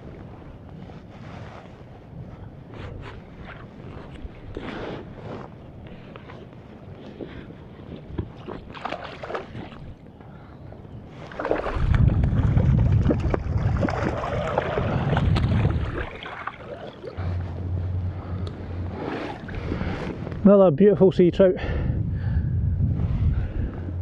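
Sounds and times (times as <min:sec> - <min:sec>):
wind rumbling on microphone: 0:00.0 - 0:24.0
water splashing and sloshing: 0:02.7 - 0:10.4, 0:11.1 - 0:20.4.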